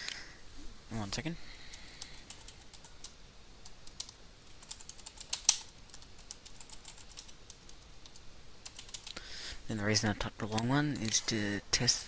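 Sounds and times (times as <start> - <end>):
computer keyboard typing: 2.1 - 9.2.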